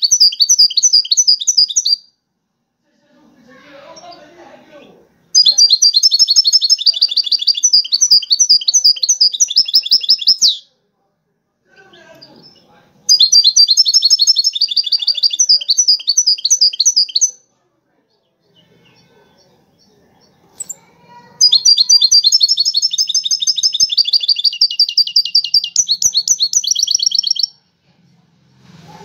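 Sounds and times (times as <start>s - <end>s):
goldfinch singing: 0.0s - 2.1s, 5.4s - 10.6s, 11.8s - 17.4s, 18.5s - 27.5s.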